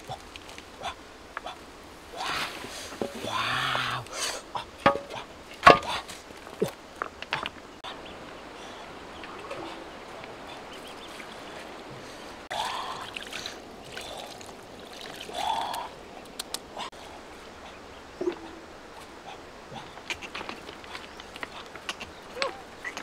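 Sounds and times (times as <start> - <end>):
flowing river water: 0.0 - 23.0.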